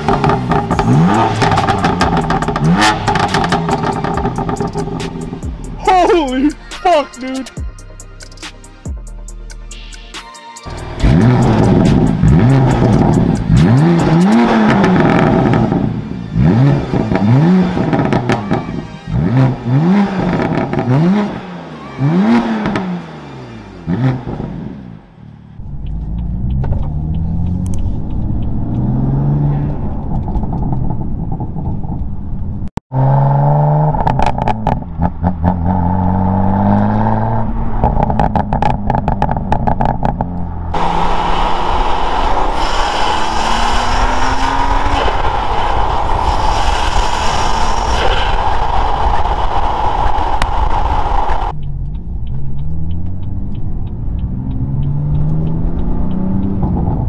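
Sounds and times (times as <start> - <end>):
car engine accelerating hard: 0.0 - 6.4, 10.7 - 57.0
car exhaust: 0.0 - 6.7, 10.7 - 57.0
wind rush: 40.7 - 51.6.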